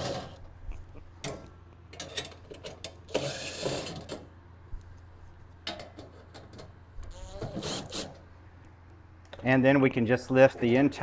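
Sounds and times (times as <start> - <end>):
clicks and metal knocks: 5.6 - 6.8.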